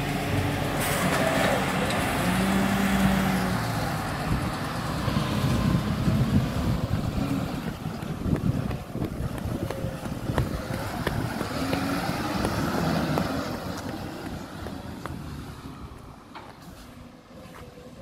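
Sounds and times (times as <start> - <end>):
garbage truck engine: 0.0 - 18.0
wind buffeting microphone: 3.9 - 16.3.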